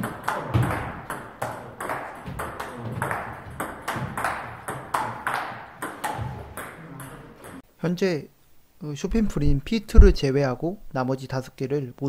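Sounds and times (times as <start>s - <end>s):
table tennis ball hits: 0.0s - 7.6s.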